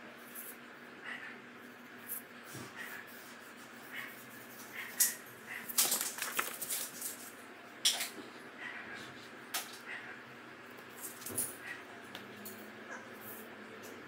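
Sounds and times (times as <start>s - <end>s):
paper rustling on table: 4.4s - 7.4s.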